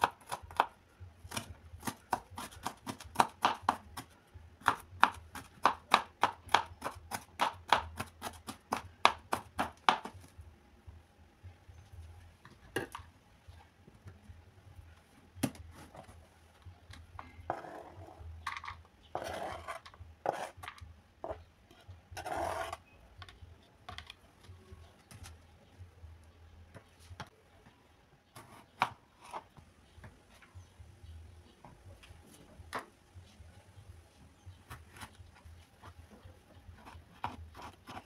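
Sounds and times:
knife scraping on chopping board: 0:22.2 - 0:22.8.

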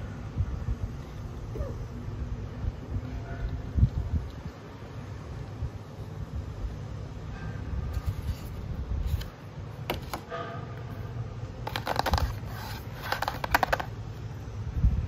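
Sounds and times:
low steady rumble: 0:00.0 - 0:15.0
cardboard tray and bottles clicking: 0:11.7 - 0:13.9.

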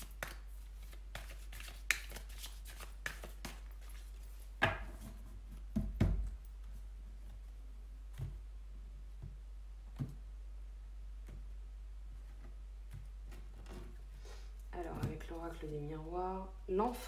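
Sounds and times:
cards tapping and sliding: 0:00.0 - 0:04.0.

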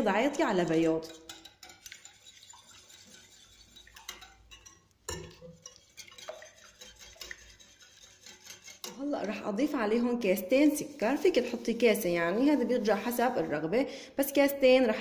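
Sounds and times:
whisk knocking on bowl: 0:01.0 - 0:09.3
whisk clicking against glass bowl: 0:01.0 - 0:09.4.

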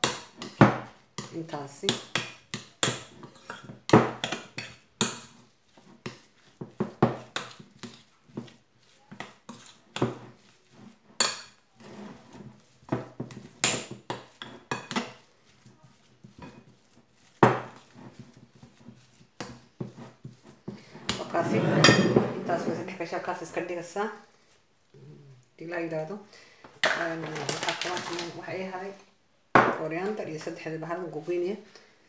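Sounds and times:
metal spoon scraping glass bowl: 0:21.0 - 0:23.1.

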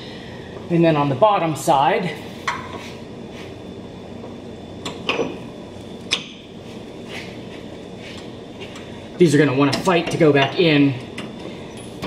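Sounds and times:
background hum: 0:00.0 - 0:12.0.

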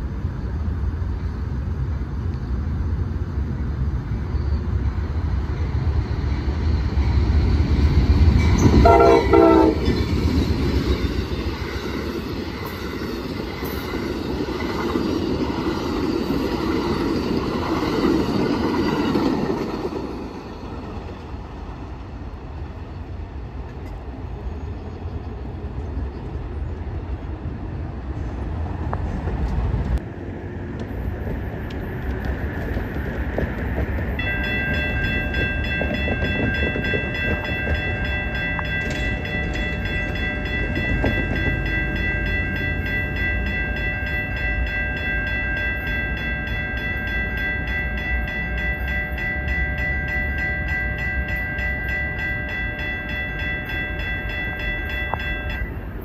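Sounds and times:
trains rumbling: 0:00.0 - 0:56.0
high-pitched ringing tones: 0:34.2 - 0:56.0.

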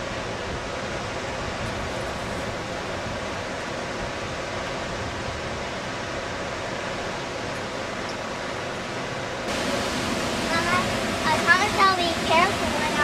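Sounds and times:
waterfall rushing: 0:09.4 - 0:13.0.

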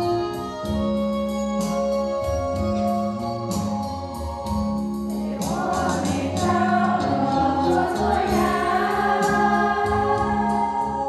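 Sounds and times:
organ chords: 0:00.0 - 0:11.0
women's choir singing a hymn: 0:05.1 - 0:11.0.

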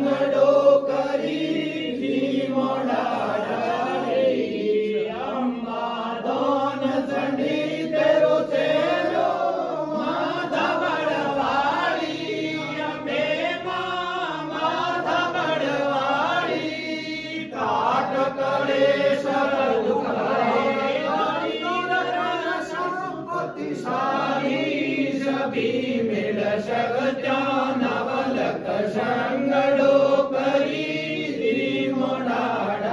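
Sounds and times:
men chanting in unison: 0:00.0 - 0:32.9.

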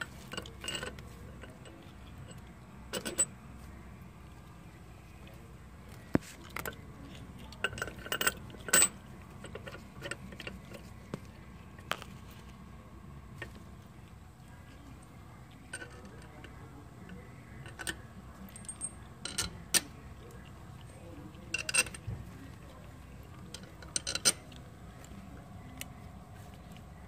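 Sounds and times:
ratchet and bolts clinking on metal: 0:00.2 - 0:01.7, 0:07.6 - 0:10.8, 0:17.7 - 0:19.8, 0:21.5 - 0:22.1, 0:23.5 - 0:24.5.

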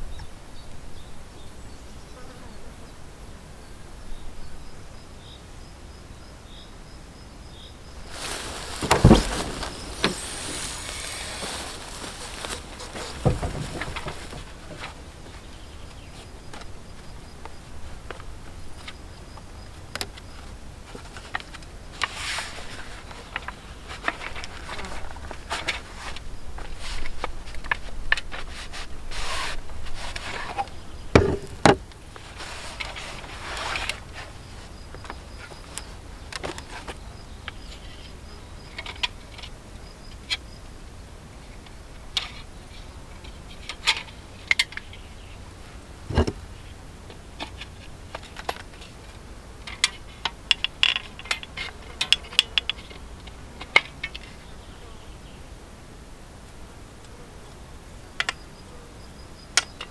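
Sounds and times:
heavy thump: 0:08.1 - 0:14.9, 0:31.2 - 0:31.8, 0:46.1 - 0:46.4
fabric bag rustling: 0:08.1 - 0:15.0.

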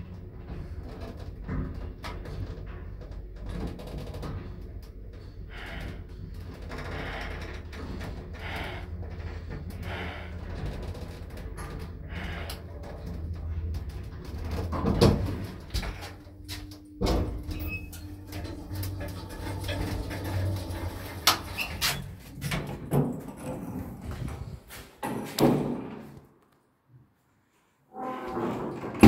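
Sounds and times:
lift car humming: 0:04.6 - 0:22.9
sliding doors opening: 0:14.4 - 0:25.0, 0:27.9 - 0:29.0.

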